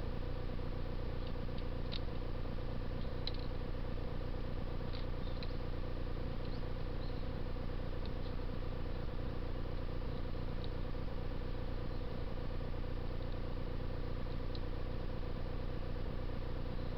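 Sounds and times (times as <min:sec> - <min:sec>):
low hum with hiss: 0:00.0 - 0:16.9
sparrows chirping: 0:04.9 - 0:09.3, 0:11.8 - 0:12.2.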